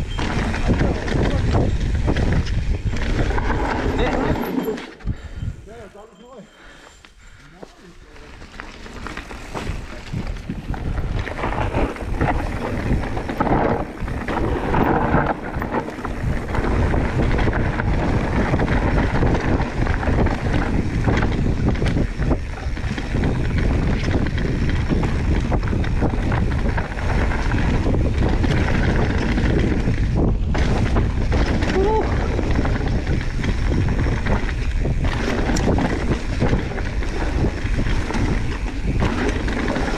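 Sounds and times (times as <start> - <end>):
wind buffeting microphone: 0.0 - 4.4, 5.0 - 6.0, 8.1 - 39.9
bike clattering over bumps: 0.0 - 5.2, 8.2 - 39.9
tyres rumbling on dirt trail: 0.0 - 39.9.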